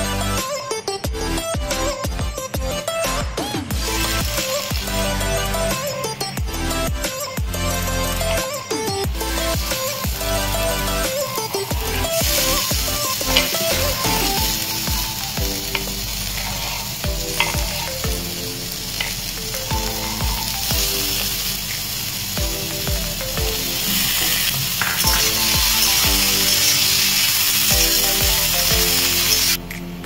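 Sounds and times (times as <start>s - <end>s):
background music with beat: 0.0s - 30.0s
vegetables sizzling in oil: 3.7s - 29.6s
metal spatula scraping wok: 8.2s - 22.9s, 23.6s - 29.6s.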